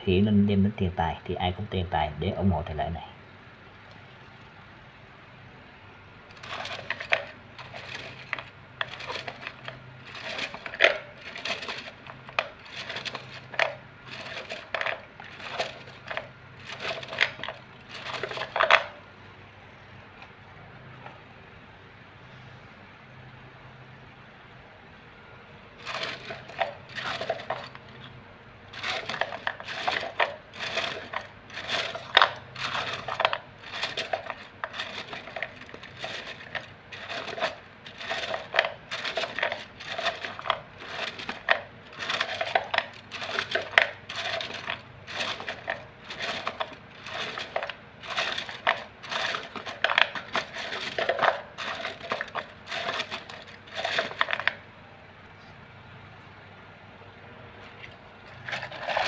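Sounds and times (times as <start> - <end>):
wooden sticks clattering in a cup: 6.3 - 19.0, 25.8 - 28.1, 28.7 - 54.6, 58.3 - 59.0.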